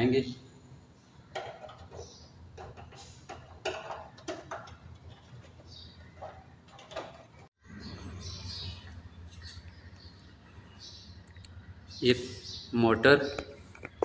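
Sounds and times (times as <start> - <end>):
plastic parts clicking and knocking: 1.3 - 5.6, 6.2 - 7.5.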